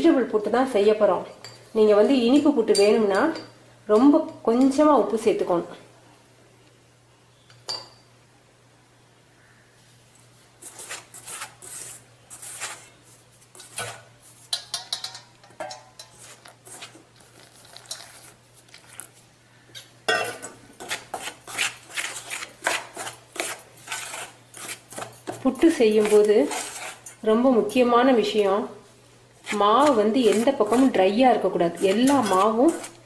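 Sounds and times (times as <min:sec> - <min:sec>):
fingers scraping a metal bowl: 0:10.6 - 0:14.0, 0:16.0 - 0:19.1, 0:20.8 - 0:27.1, 0:29.4 - 0:33.0.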